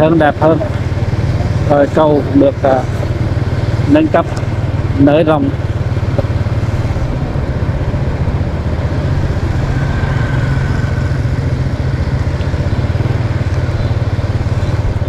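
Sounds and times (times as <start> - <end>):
motorbike engine running: 0.0 - 15.0
road and wind noise: 0.0 - 15.0.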